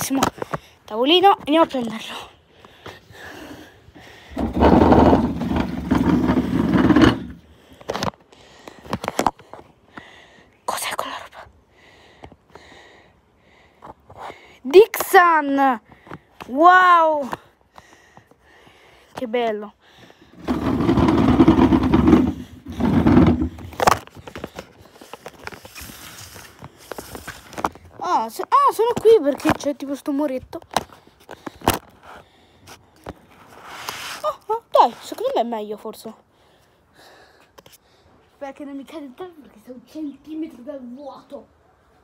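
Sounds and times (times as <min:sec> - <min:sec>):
table scraping across tiled floor: 0:04.4 - 0:07.5, 0:20.4 - 0:24.0.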